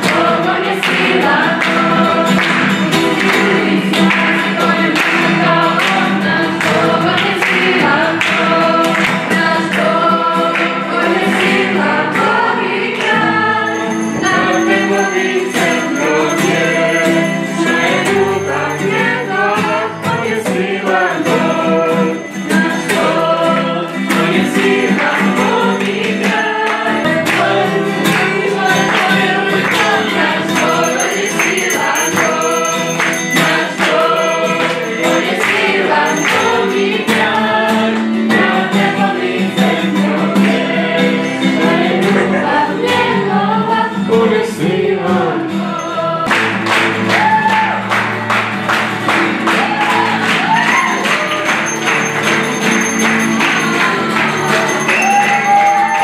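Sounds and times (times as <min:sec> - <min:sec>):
young voices singing together: 0:00.0 - 0:48.0, 0:49.3 - 0:52.1, 0:53.2 - 0:56.0
strummed acoustic guitar: 0:00.0 - 0:56.0.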